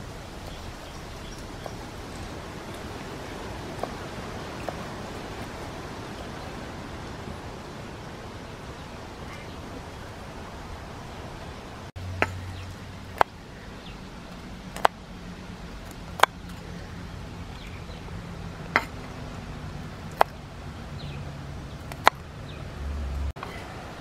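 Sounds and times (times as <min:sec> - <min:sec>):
cleaver chopping on wooden board: 0:14.8 - 0:15.0, 0:18.8 - 0:19.0, 0:20.1 - 0:20.4, 0:21.9 - 0:22.2.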